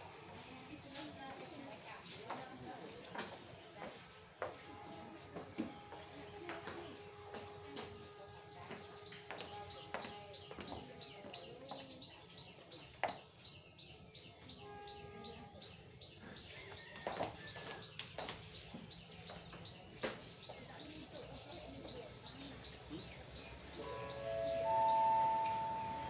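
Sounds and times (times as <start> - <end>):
bird chirping: 17.9 - 26.0.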